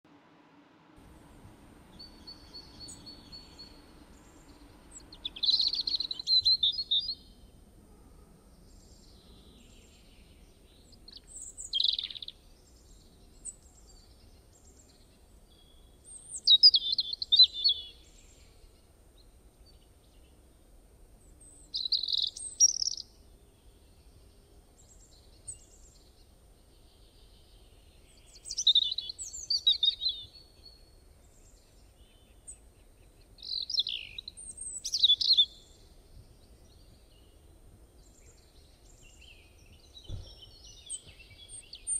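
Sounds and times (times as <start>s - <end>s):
bird chirping: 1.2s - 7.6s, 8.5s - 20.4s, 21.2s - 41.9s.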